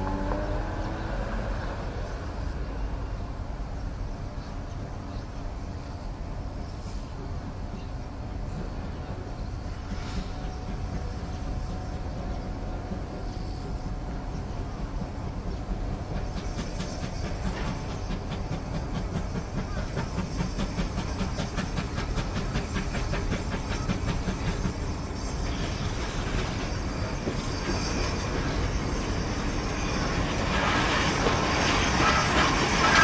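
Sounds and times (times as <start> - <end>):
steam hissing: 8.5 - 33.0.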